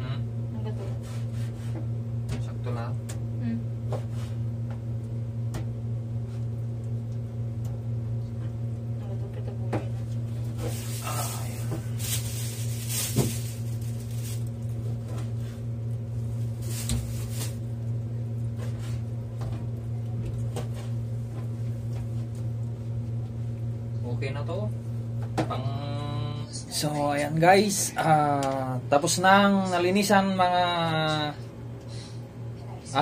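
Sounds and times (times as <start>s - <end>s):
steady low hum: 0.0s - 33.0s.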